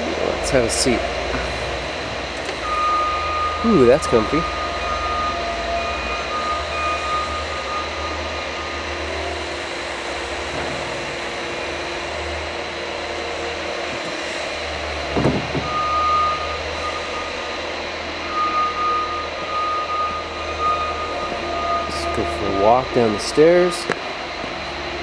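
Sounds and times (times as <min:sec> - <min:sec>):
machinery hum: 0:00.0 - 0:25.0
high beeping tone: 0:02.6 - 0:08.7, 0:18.2 - 0:23.7.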